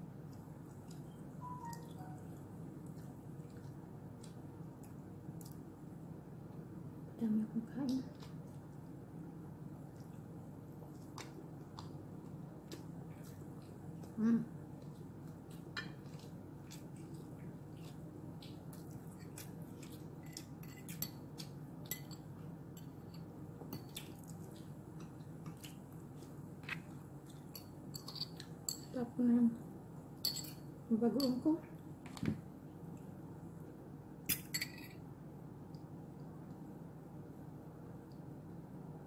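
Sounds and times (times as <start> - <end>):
low room hum: 0.0 - 39.0.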